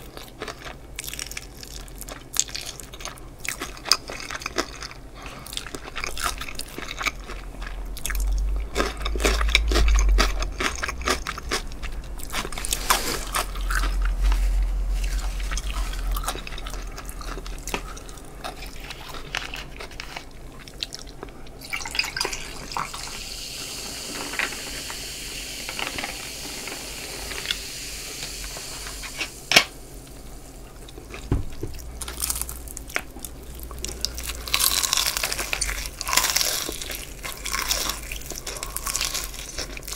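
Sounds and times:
chewing and crunching: 0.0s - 23.1s, 30.0s - 39.9s
cola pouring over ice and fizzing: 21.6s - 28.2s.

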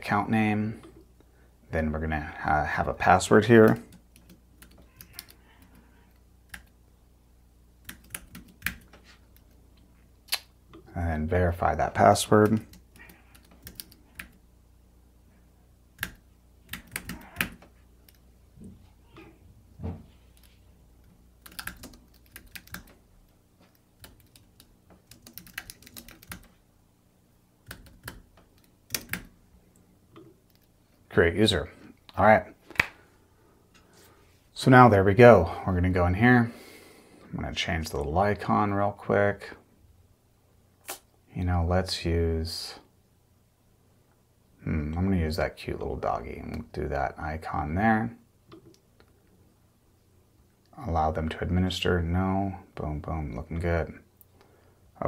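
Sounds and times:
computer keyboard typing: 3.6s - 5.7s, 6.5s - 6.8s, 7.8s - 9.6s, 12.4s - 14.4s, 16.0s - 18.2s, 21.4s - 23.0s, 23.7s - 26.6s, 27.6s - 29.3s
computer keyboard key presses: 21.4s - 23.0s, 24.0s - 26.5s, 27.7s - 29.3s.

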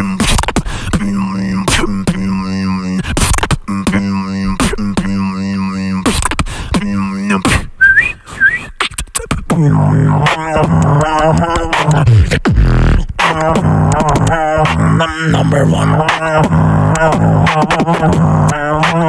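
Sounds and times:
beatboxing into microphone: 0.0s - 19.0s
rising whistled notes: 7.8s - 8.7s.

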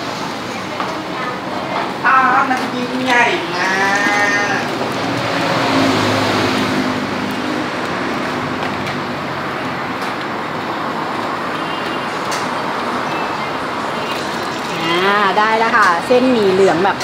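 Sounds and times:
road traffic noise: 0.0s - 17.0s
vehicle engine: 0.0s - 17.0s.

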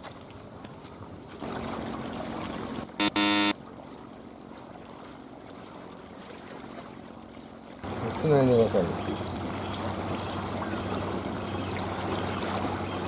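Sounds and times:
seawater lapping against rocks: 0.0s - 3.0s, 3.7s - 13.0s
short pitched tone: 3.0s - 3.6s.

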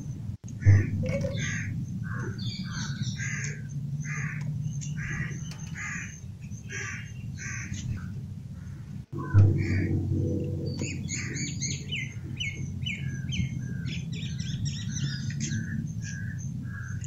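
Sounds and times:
steady low rumble: 0.0s - 17.0s
crows cawing: 0.6s - 10.0s, 15.0s - 17.0s.

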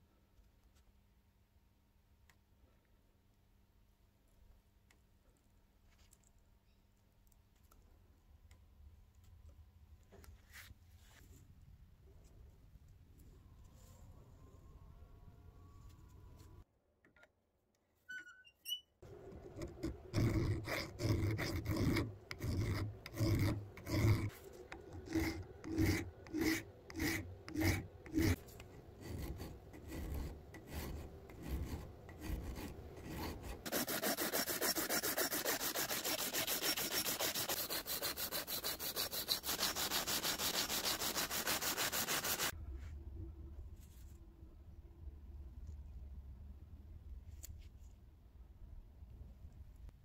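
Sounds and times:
file rasping on metal: 19.4s - 42.5s.

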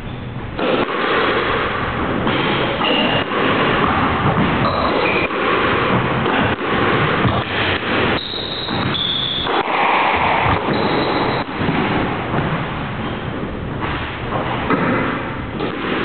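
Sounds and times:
squash ball strikes: 0.5s - 16.0s
shoe squeaks on court floor: 4.6s - 5.3s, 8.2s - 9.5s, 10.7s - 11.4s.

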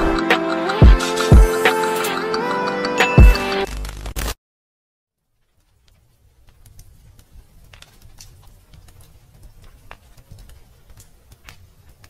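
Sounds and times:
small clicks and taps: 5.4s - 12.0s.

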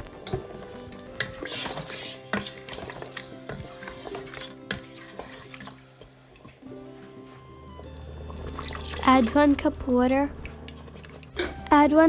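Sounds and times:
wooden spoon stirring thick curry: 0.3s - 6.6s.

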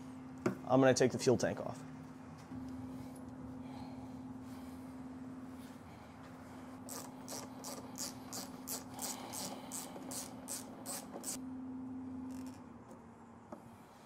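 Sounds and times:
ratchet wrench ratcheting: 6.9s - 11.4s.

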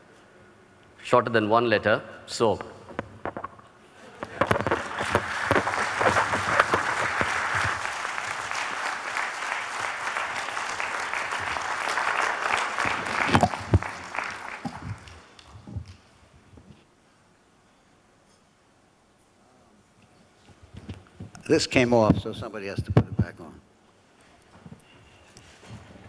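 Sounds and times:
thumps: 2.9s - 7.7s
audience applauding: 4.1s - 16.0s.

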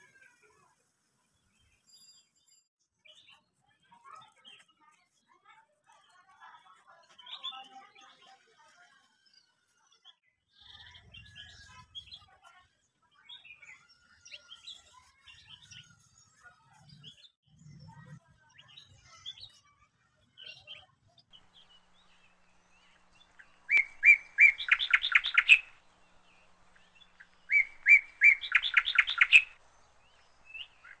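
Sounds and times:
faint bird chirps: 5.9s - 31.0s
bird singing rattling phrases: 9.2s - 31.0s.

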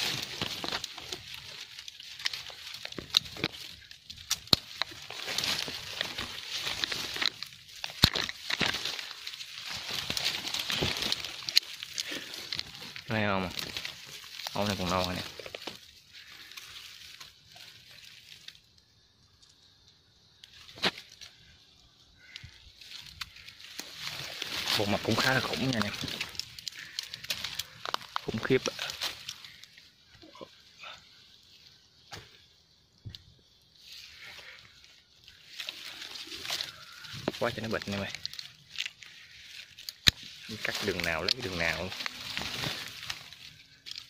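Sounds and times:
branch cracking: 0.0s - 44.0s
leaves rustling: 0.0s - 44.0s
twigs snapping: 0.0s - 44.0s
faint rustling in brush: 33.7s - 44.0s.

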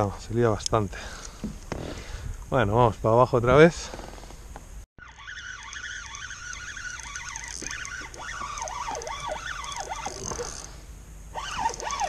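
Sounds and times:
fishing reel whirring: 5.0s - 12.0s.

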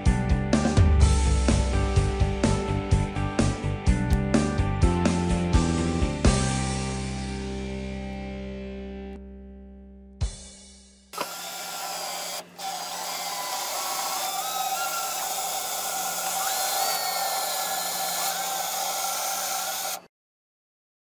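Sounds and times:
power drill boring into wall: 11.2s - 20.1s.

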